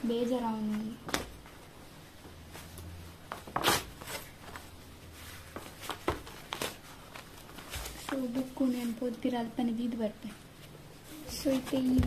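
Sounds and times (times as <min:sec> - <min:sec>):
paper pages rustling: 0:03.3 - 0:09.1.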